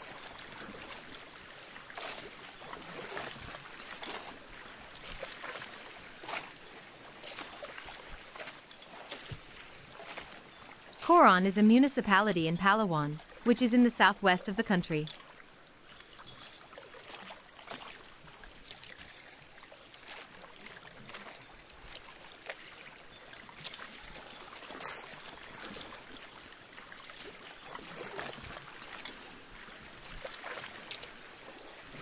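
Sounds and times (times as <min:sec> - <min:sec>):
water slapping boat hull: 0:00.0 - 0:11.0
choppy water wash: 0:00.0 - 0:12.1, 0:13.0 - 0:32.0.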